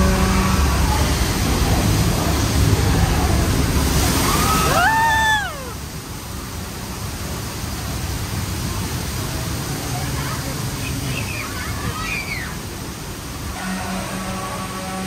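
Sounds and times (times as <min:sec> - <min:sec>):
water rushing and splashing: 0:00.0 - 0:15.0
person crying out: 0:04.7 - 0:05.8.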